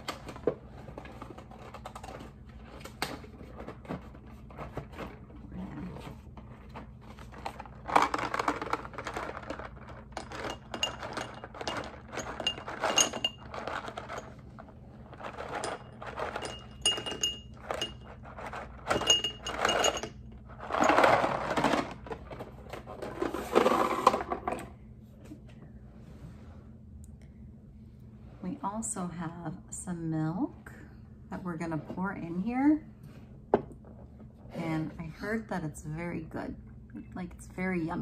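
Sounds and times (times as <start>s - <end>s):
small hard balls clattering on glass: 8.0s - 14.3s, 15.2s - 21.4s
glass bowl ringing: 16.4s - 18.0s.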